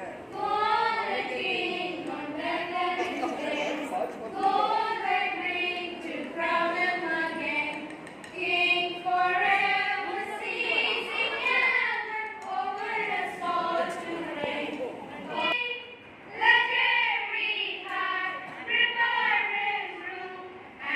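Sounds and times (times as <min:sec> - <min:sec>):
group singing unaccompanied: 0:00.0 - 0:20.9.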